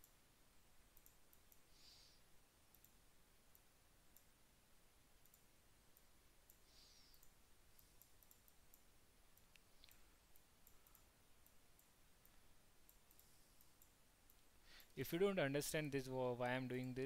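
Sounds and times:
computer mouse clicks: 0.9s - 1.7s, 2.7s - 4.3s, 5.2s - 14.9s.

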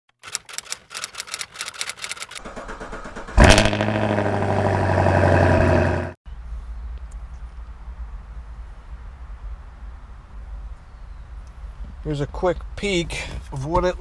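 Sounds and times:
rapid irregular clicking: 0.1s - 2.6s
engine starting and idling: 0.2s - 5.9s.

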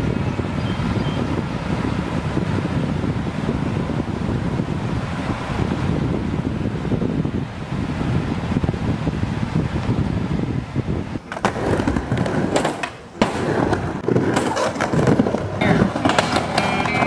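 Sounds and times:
skateboard wheels rolling on wood: 0.0s - 17.0s
wind on microphone: 0.0s - 17.0s
skateboard clacking on ramp: 11.2s - 17.0s.

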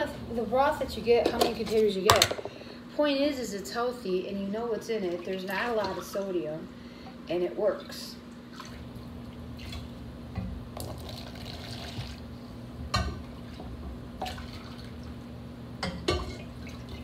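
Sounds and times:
steady low hum: 0.0s - 17.0s
liquid dripping and splashing: 8.3s - 9.9s.

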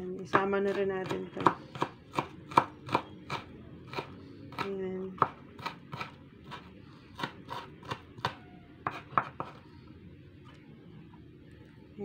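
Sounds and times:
knife chopping on wooden board: 0.3s - 9.6s.

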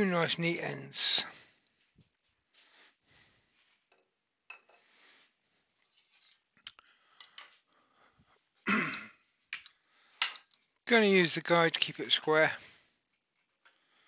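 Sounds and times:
wooden pieces rubbed and set down: 3.6s - 7.7s.

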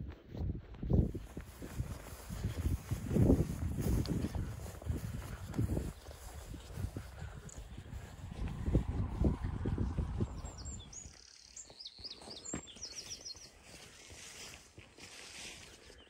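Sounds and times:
footsteps through long grass: 0.0s - 16.0s
songbird chirping and trilling: 9.8s - 14.5s.

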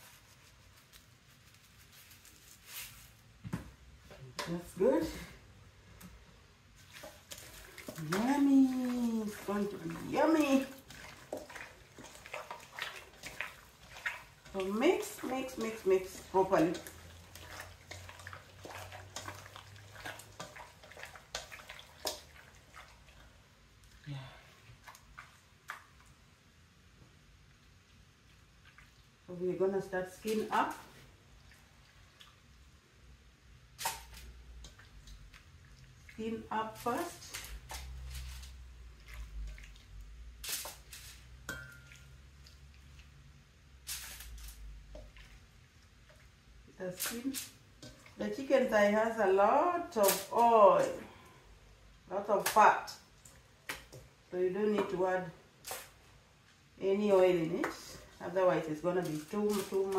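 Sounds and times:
foil rustling: 0.0s - 3.3s
hands squelching raw chicken: 6.8s - 24.0s, 33.8s - 43.2s.

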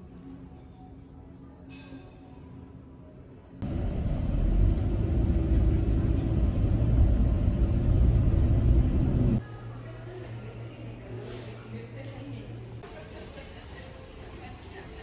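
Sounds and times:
car driving rumble inside cabin: 3.6s - 9.4s.

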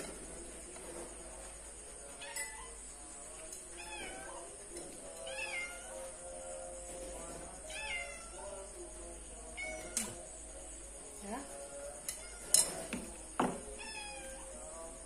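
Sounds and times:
cat meowing: 13.7s - 14.5s.

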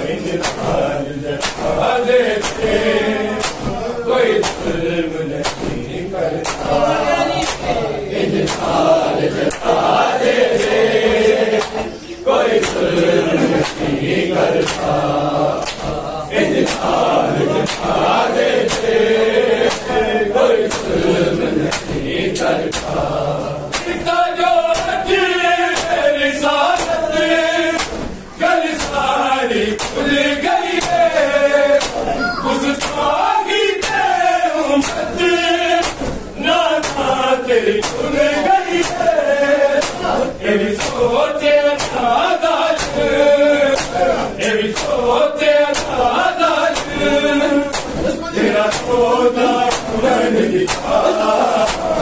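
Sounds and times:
men chanting in unison: 0.0s - 52.0s
open-hand chest slaps: 0.4s - 0.8s, 1.4s - 1.8s, 2.4s - 2.8s, 3.4s - 3.8s, 4.4s - 4.8s, 5.4s - 5.8s, 6.4s - 6.8s, 8.4s - 8.8s, 11.6s - 11.9s, 12.6s - 14.0s, 14.6s - 14.9s, 15.6s - 17.0s, 17.6s - 18.0s, 18.6s - 18.9s, 19.6s - 20.0s, 20.6s - 23.0s, 23.7s - 24.1s, 24.7s - 25.0s, 25.7s - 26.0s, 26.7s - 27.0s, 27.8s - 29.1s, 29.8s - 30.1s, 30.7s - 31.1s, 31.8s - 32.1s, 32.8s - 33.0s, 33.8s - 34.2s, 34.8s - 35.1s, 35.8s - 36.2s, 36.8s - 37.1s, 37.8s - 38.2s, 38.8s - 39.2s, 39.8s - 40.2s, 40.8s - 41.1s, 41.8s - 42.2s, 42.8s - 46.1s, 46.7s - 49.0s, 49.7s - 50.0s, 50.7s - 52.0s.

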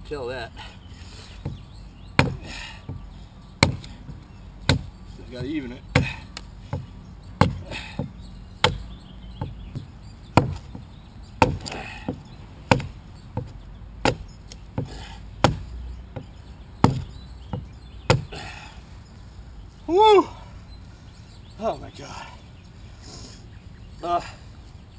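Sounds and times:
adze chopping wood: 1.4s - 18.6s.

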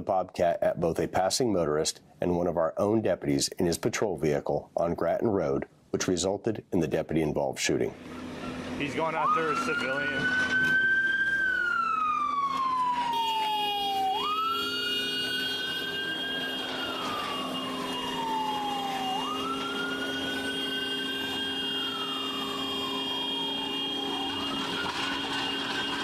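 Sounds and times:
police siren wailing: 8.0s - 26.0s.

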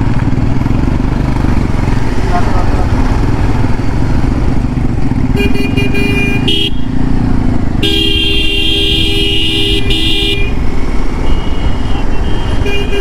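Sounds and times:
motorcycle engine rumble: 0.0s - 13.0s
wind: 0.0s - 13.0s
vehicle horn honking: 5.3s - 6.9s, 7.8s - 10.6s, 11.2s - 13.0s.

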